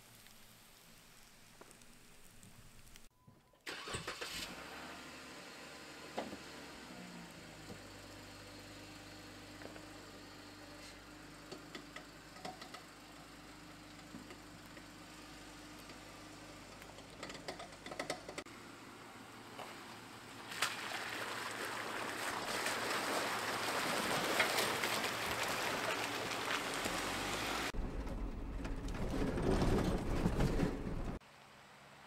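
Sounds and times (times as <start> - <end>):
engine and tyres rumbling: 0.5 - 32.0
water splashing and rushing: 20.4 - 27.8.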